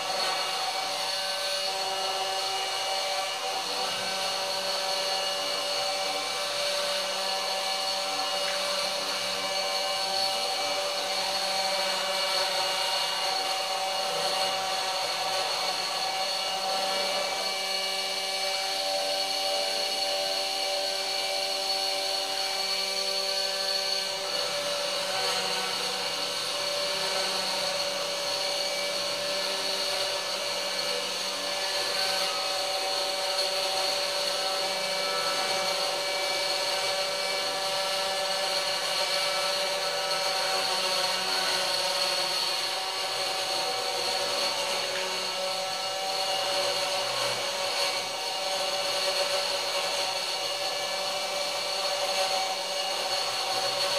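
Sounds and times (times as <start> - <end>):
stepper motor tones: 0.0 - 48.9
spindle motor whine: 0.0 - 53.9.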